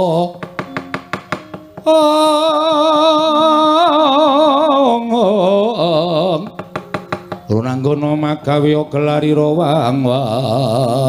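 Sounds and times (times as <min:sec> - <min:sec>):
sharp knocks: 0:00.4 - 0:01.9, 0:06.5 - 0:07.6
person singing long vibrato note: 0:01.8 - 0:06.6.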